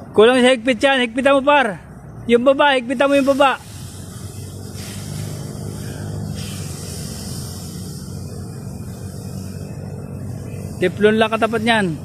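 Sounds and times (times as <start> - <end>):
water jet spraying: 2.4 - 12.0.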